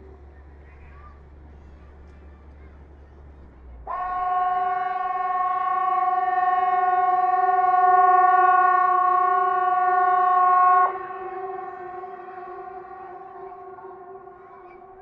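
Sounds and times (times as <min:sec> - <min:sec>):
siren steady chord: 0:03.9 - 0:15.0.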